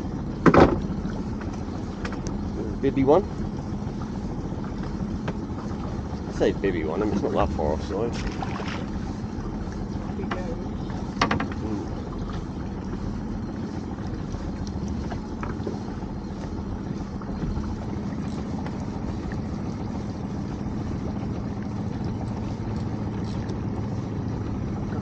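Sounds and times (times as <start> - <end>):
boat engine idling: 0.0 - 25.0
water noise: 0.0 - 25.0
wind: 0.0 - 25.0
faint ticks: 14.0 - 16.5, 21.6 - 23.6.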